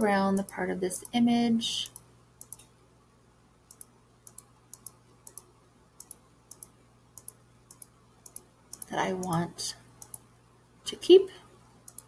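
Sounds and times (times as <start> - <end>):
computer mouse button clicking: 3.7 - 9.4.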